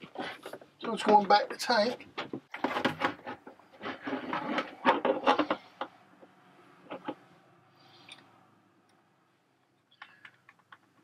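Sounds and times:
plastic hose rattling and rubbing: 0.0 - 7.3.

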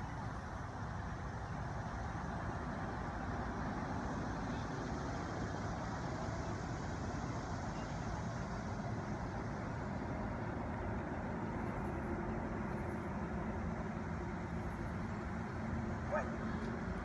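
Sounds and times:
low rumbling outdoor background noise: 0.0 - 17.0.

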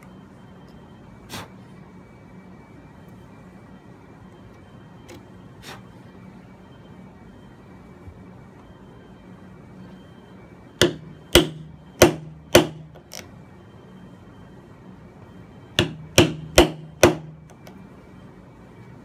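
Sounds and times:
hammer striking chisel: 10.8 - 13.2, 15.8 - 17.8.

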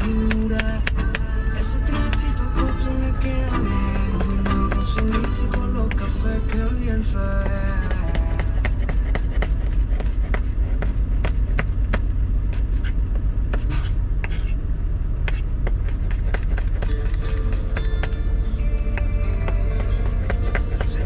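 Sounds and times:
steady low rumble: 0.0 - 21.0
knife chopping on wooden board: 7.9 - 12.1, 15.3 - 18.2, 19.0 - 21.0.

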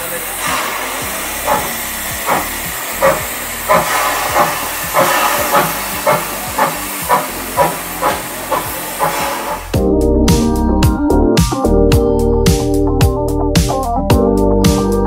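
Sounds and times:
steam hissing: 0.0 - 9.8
steam locomotive exhaust chuffs: 0.0 - 9.9.

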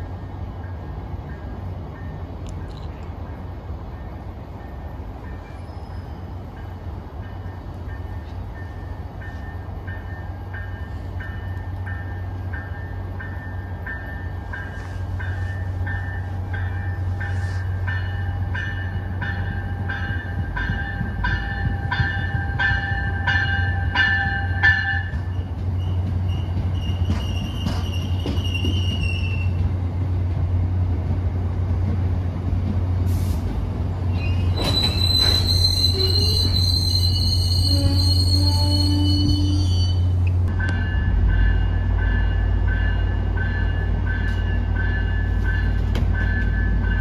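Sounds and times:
train rumbling: 0.0 - 47.0
train bell ringing: 4.0 - 29.6, 34.8 - 47.0
loud high squeal: 25.8 - 29.6, 34.1 - 40.2.

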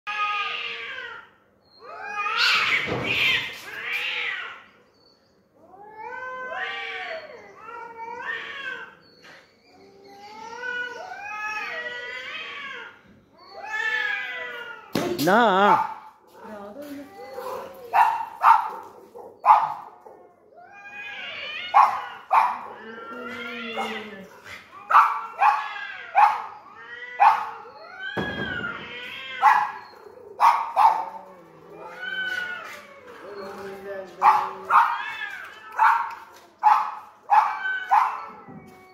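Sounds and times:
cats yowling: 0.1 - 15.9, 16.8 - 38.9
dog whining: 6.4 - 11.9, 15.2 - 38.9
dog barking: 17.4 - 20.1, 21.7 - 22.8, 24.9 - 26.5, 27.2 - 27.6, 29.4 - 29.8, 30.4 - 31.2, 34.2 - 35.0, 35.8 - 38.3.

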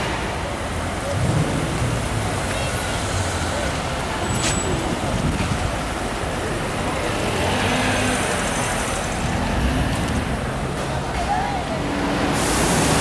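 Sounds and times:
cars passing slowly: 0.0 - 13.0.

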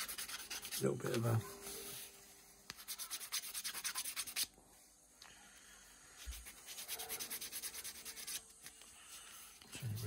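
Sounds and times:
sandpaper rubbing plastic: 0.0 - 1.0, 2.8 - 4.5, 6.2 - 8.5.

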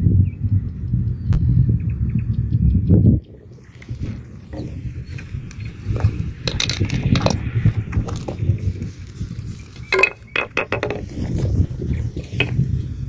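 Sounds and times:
low rumble: 0.5 - 13.0
pebbles clinking and knocking: 9.8 - 11.4.

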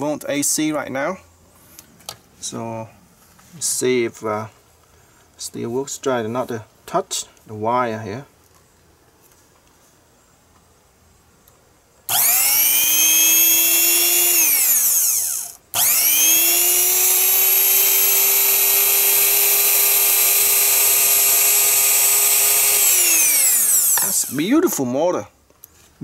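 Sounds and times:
blender motor whining: 12.1 - 24.5.

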